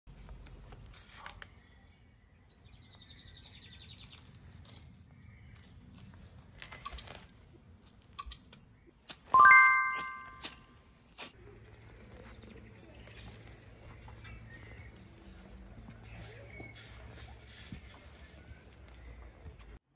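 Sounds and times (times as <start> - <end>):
bell-like chime: 9.4 - 10.5.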